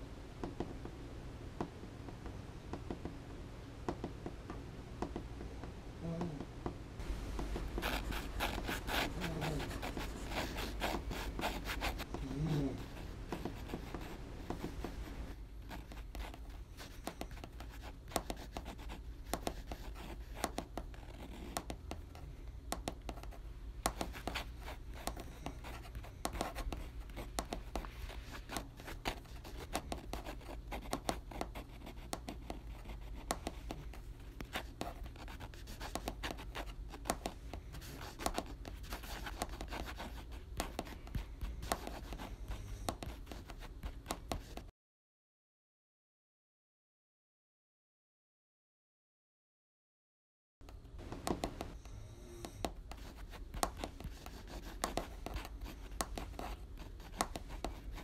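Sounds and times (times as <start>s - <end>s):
steady low hum: 0.0s - 44.7s, 50.7s - 58.0s
scratching and clicking on paper: 7.3s - 44.7s, 51.0s - 51.8s, 52.4s - 58.0s.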